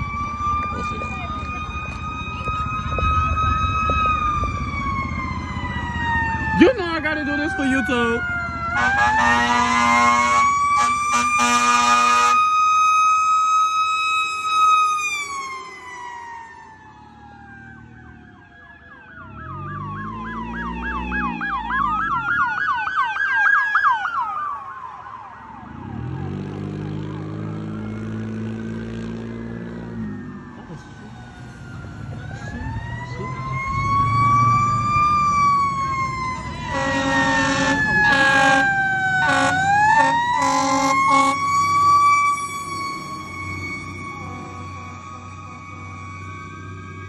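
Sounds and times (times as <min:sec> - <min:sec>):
vehicle engine: 0:00.0 - 0:22.9, 0:24.0 - 0:47.0
electronic yelp siren: 0:00.0 - 0:47.0
mechanical siren wailing: 0:00.0 - 0:47.0
air horn blasts: 0:08.7 - 0:12.4, 0:36.6 - 0:41.5.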